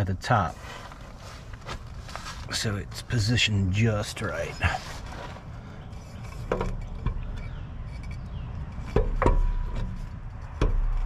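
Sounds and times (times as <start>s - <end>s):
metal knocks and clinks: 5.9s - 11.0s.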